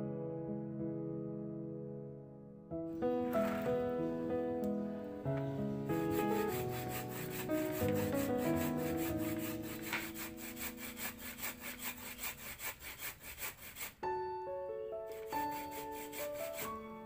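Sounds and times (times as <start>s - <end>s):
background music: 0.0s - 12.8s, 13.5s - 17.0s
coconut rasping on wooden grater: 5.9s - 14.0s, 15.2s - 16.8s.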